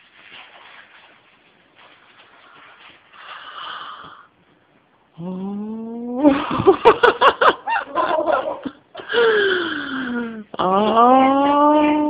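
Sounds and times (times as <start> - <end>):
paper rustling: 0.0 - 3.6
person squealing and laughing: 7.7 - 8.8.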